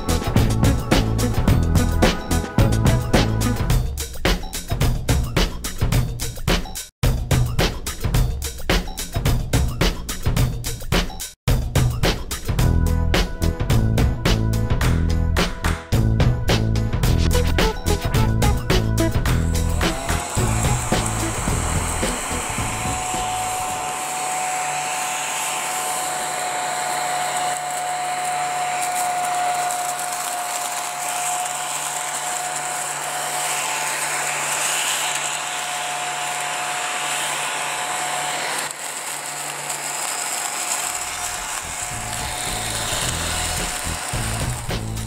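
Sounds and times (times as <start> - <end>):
small vacuum cleaner whirring: 17.4 - 45.0.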